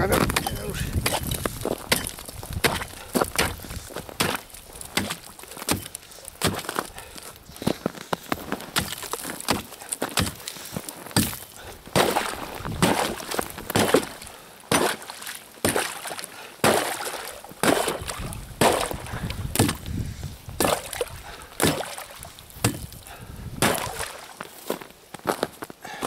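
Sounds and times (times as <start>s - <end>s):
hatchet chopping into ice: 0.3s - 6.9s, 8.7s - 10.6s, 11.2s - 19.8s, 20.6s - 23.0s, 23.6s - 24.2s.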